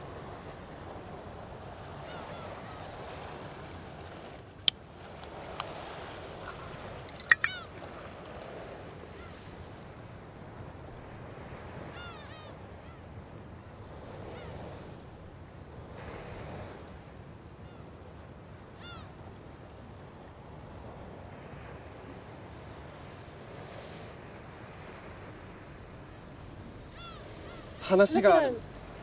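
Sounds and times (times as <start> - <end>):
sea waves: 0.0 - 29.0
wind: 0.0 - 29.0
bird calls: 6.5 - 8.1, 26.9 - 28.0
drink can opening click: 7.0 - 7.6.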